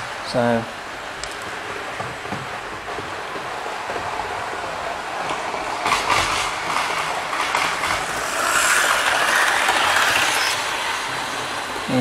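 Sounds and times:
model train whirring rattle: 5.3s - 12.0s.

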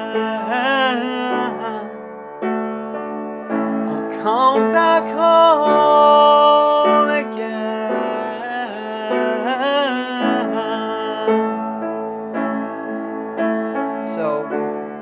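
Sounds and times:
man singing: 0.0s - 2.0s, 3.9s - 11.9s, 14.0s - 14.7s
piano chords: 0.0s - 15.0s.

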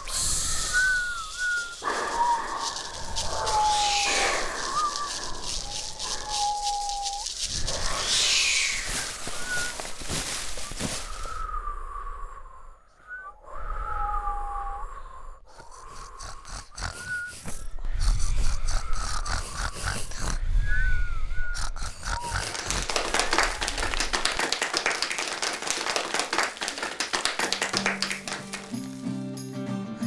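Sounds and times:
animal snuffling and grunting: 0.0s - 10.0s, 15.5s - 20.4s, 21.6s - 24.1s
short chirping whistles: 0.0s - 10.0s.

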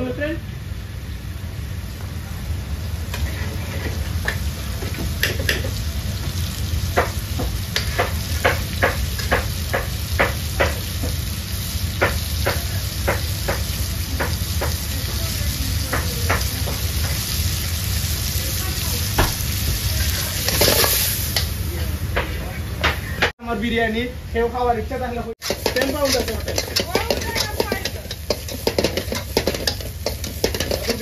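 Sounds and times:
onions sizzling in oil: 0.0s - 22.1s, 25.4s - 31.0s
metal ladle scraping a wok: 3.1s - 5.8s, 20.0s - 21.6s, 25.4s - 31.0s.

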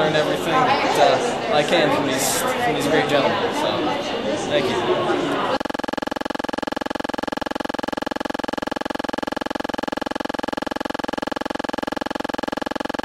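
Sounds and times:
pulsing electronic buzzing tone: 5.5s - 13.0s.

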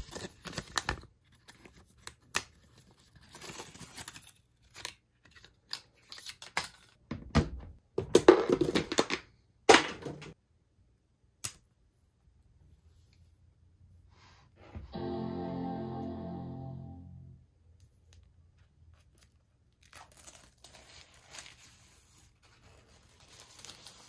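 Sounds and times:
paper packaging rustling: 0.0s - 7.0s, 18.9s - 24.0s.

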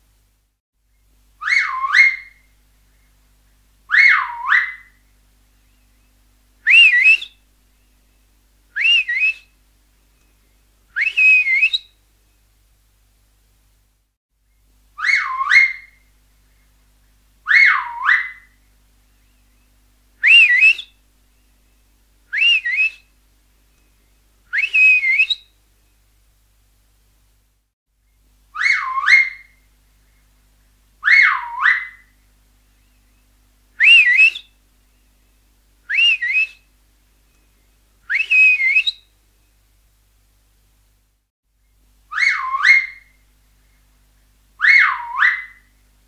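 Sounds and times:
loud finger whistles: 6.7s - 7.4s, 8.8s - 9.5s, 11.0s - 11.9s, 20.2s - 20.9s, 22.3s - 23.1s, 24.5s - 25.4s, 33.8s - 34.5s, 35.9s - 36.6s, 38.1s - 39.0s.

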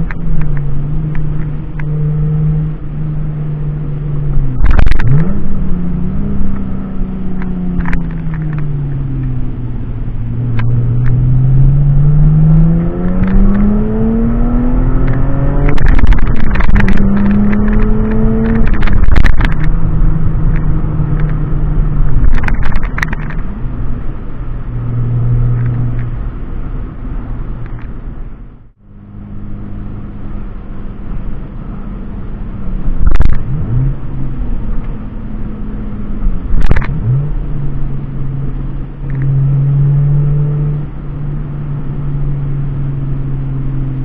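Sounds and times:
car engine and exhaust accelerating: 0.0s - 44.0s
exhaust pops: 15.0s - 23.5s.

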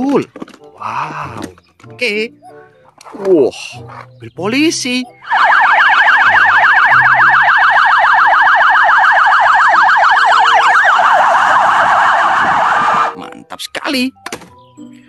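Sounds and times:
police siren yelping: 5.2s - 13.2s.

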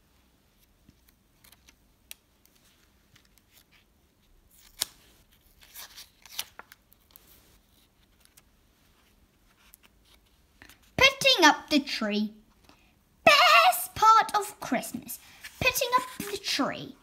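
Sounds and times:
book pages rustling: 0.5s - 11.0s, 14.9s - 16.8s.

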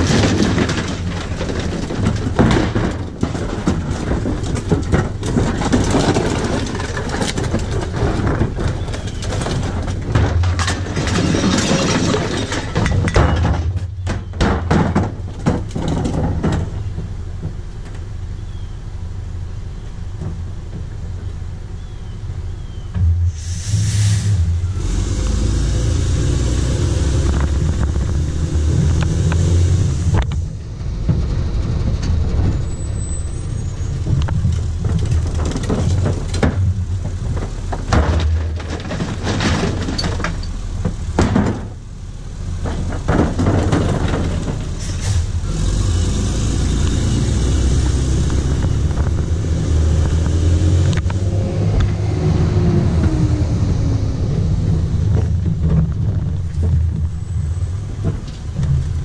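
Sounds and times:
recyclables clattering into hopper: 0.0s - 17.0s, 34.1s - 41.8s, 42.6s - 45.4s
garbage truck engine running: 0.0s - 59.0s
air hiss: 23.3s - 24.5s.

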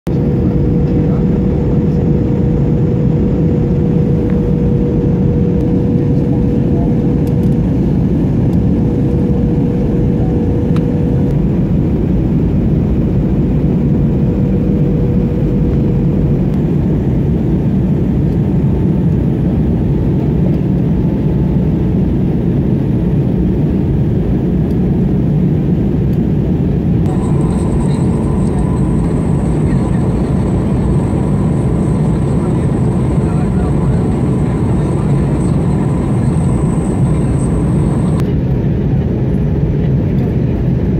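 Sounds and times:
airliner cabin engine noise: 0.1s - 40.9s
faint steady hum: 27.0s - 38.2s.

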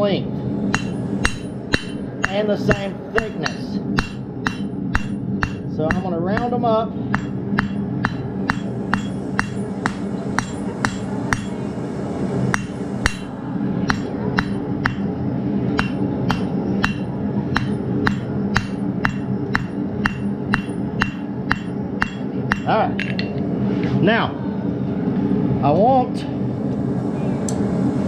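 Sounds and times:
low hum: 0.0s - 28.0s
hammer striking steel on anvil: 0.7s - 11.6s, 12.5s - 15.1s, 15.7s - 23.4s.

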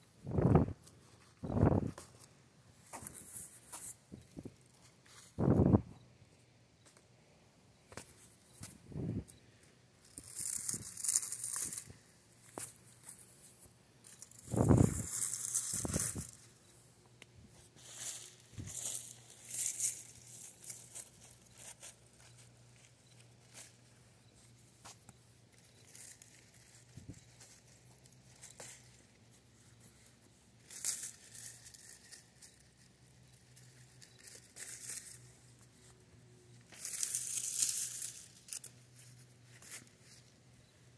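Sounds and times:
plant leaves rustling and tearing: 10.0s - 13.3s, 14.0s - 16.5s, 30.6s - 40.3s
wind buffeting microphone: 14.5s - 15.1s.

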